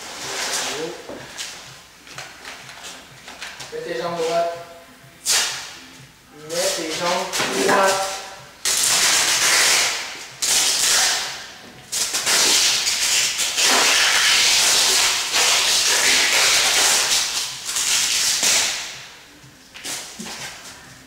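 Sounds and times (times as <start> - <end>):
tape ripping off a roll: 0.0 - 1.6, 5.2 - 5.8, 6.6 - 19.0.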